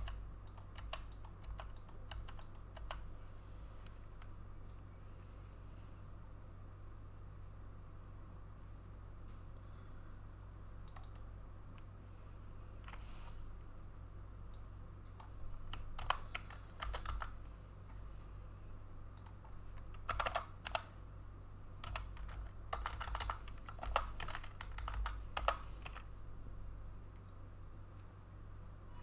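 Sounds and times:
typing on computer keyboard: 0:00.0 - 0:03.0, 0:10.9 - 0:11.3, 0:15.2 - 0:17.4, 0:19.2 - 0:20.9, 0:21.8 - 0:26.1.

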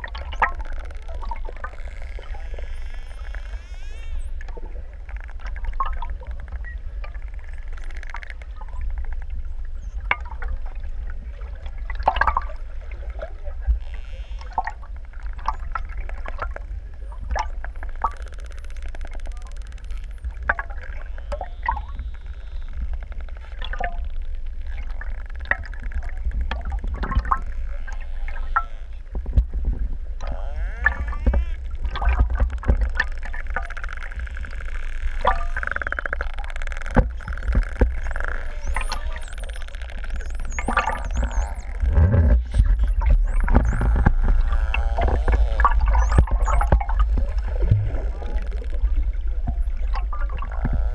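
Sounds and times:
low underwater rumble: 0:00.0 - 0:50.9
rapid dolphin clicks: 0:17.3 - 0:28.7, 0:30.2 - 0:49.0
dolphins whistling: 0:35.2 - 0:36.6, 0:37.2 - 0:41.9.

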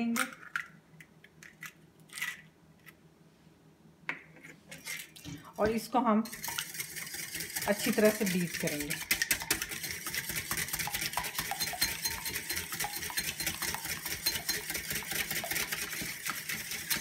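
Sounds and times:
whisk beating egg in bowl: 0:05.6 - 0:17.0.

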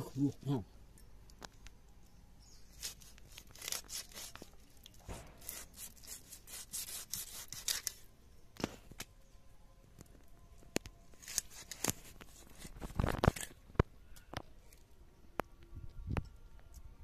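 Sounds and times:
fish scraped against blade: 0:05.1 - 0:08.0.

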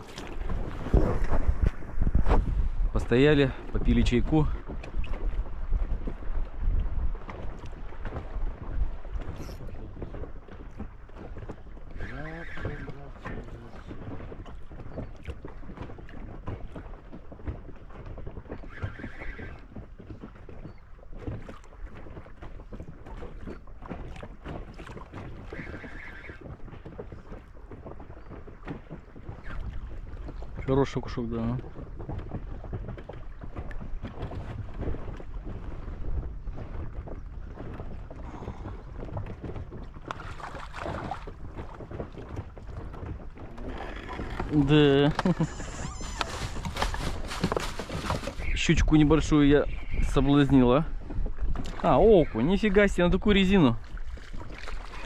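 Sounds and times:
water lapping against boat hull: 0:00.0 - 0:55.0
wind buffeting microphone: 0:00.0 - 0:55.0.

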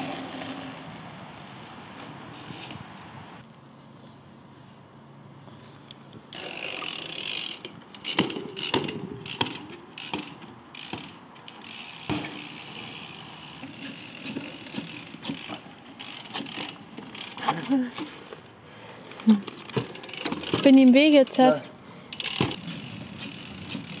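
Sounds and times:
bike tyre noise: 0:00.0 - 0:20.8, 0:22.0 - 0:24.0
freewheel ratchet buzzing: 0:06.3 - 0:17.4, 0:22.1 - 0:24.0
bike knocks and clatters: 0:06.4 - 0:12.6, 0:13.5 - 0:18.2, 0:19.6 - 0:21.1, 0:22.2 - 0:24.0.

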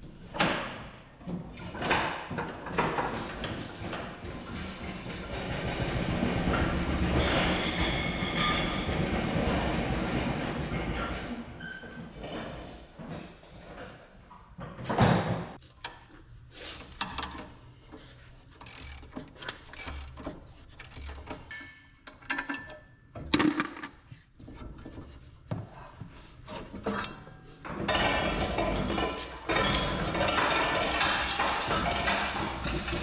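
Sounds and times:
ratchet wrench clicking: 0:18.6 - 0:21.4.

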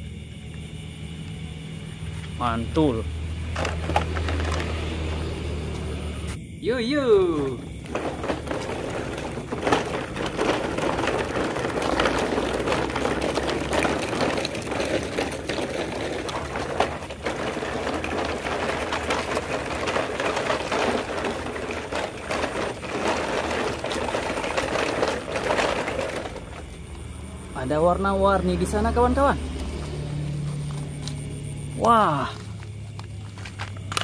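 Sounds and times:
toy trucks rolling over pebbles: 0:02.9 - 0:06.3, 0:07.2 - 0:34.0.

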